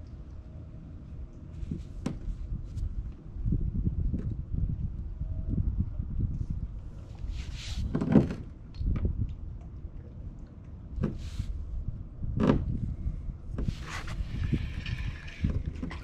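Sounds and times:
wind rumble on microphone: 0:00.0 - 0:16.0
short hissy slides: 0:07.3 - 0:07.9.

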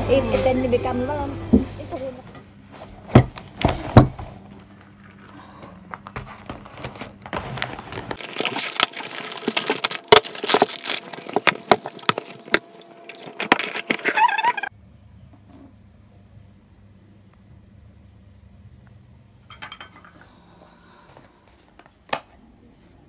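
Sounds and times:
low background hum: 0:00.0 - 0:23.0
small objects handled near microphone: 0:04.4 - 0:14.6.

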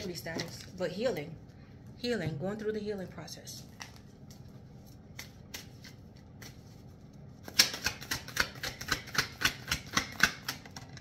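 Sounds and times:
cards slapping while shuffled: 0:05.0 - 0:11.0.

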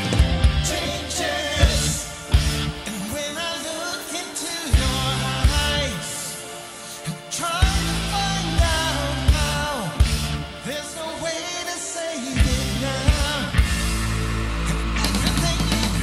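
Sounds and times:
live rock band playing: 0:00.0 - 0:06.4, 0:07.4 - 0:11.6, 0:12.4 - 0:16.0
drum kit hits: 0:01.5 - 0:02.8.

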